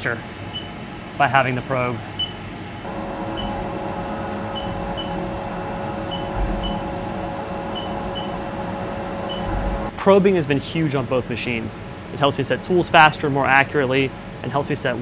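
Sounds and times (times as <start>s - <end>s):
machine hum: 0.0s - 10.0s
short high beeps: 3.4s - 3.6s, 4.5s - 5.2s, 9.2s - 9.6s.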